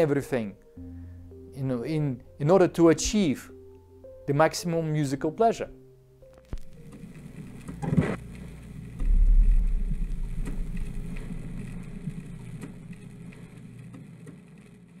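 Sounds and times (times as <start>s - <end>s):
short whoosh: 9.0s - 11.2s
deep low rumble: 9.0s - 13.2s.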